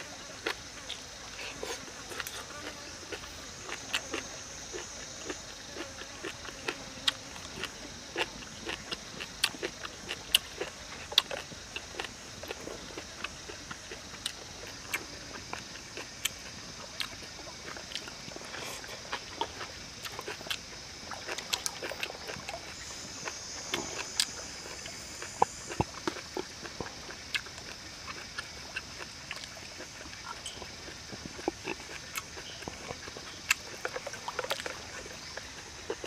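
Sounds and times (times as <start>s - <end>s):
person chewing and lip-smacking: 0.4s - 36.0s
steady high hiss: 14.0s - 30.5s.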